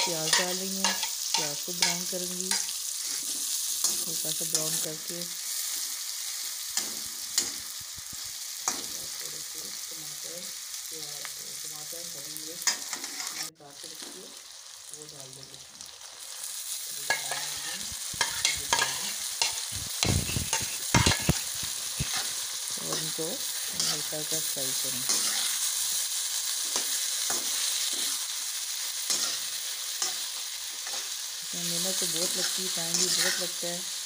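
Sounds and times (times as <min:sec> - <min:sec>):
metal spatula scraping a pan: 0:00.0 - 0:04.9, 0:12.6 - 0:13.6, 0:17.0 - 0:31.3, 0:31.9 - 0:33.8
onions sizzling in oil: 0:00.0 - 0:34.0.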